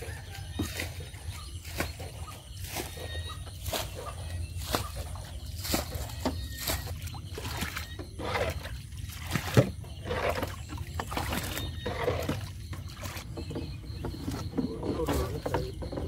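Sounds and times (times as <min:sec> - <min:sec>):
water splashing: 0:00.0 - 0:16.0.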